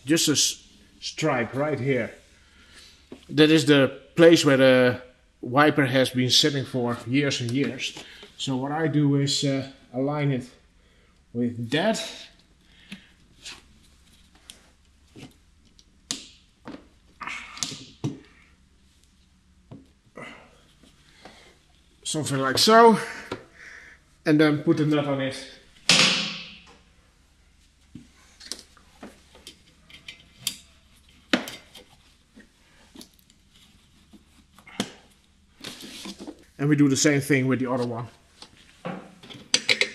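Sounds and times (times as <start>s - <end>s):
sharp knock: 25.9s - 26.7s.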